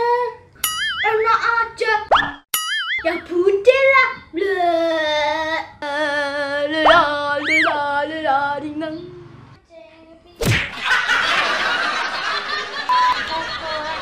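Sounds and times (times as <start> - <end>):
child's mocking taunt: 6.9 - 7.9.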